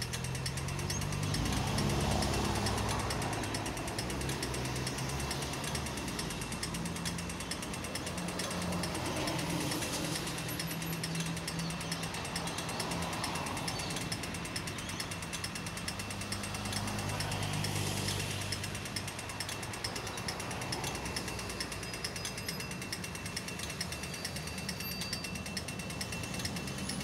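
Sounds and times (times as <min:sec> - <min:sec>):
rapid mechanical rattle: 0:00.0 - 0:27.0
street traffic hum: 0:00.0 - 0:27.0.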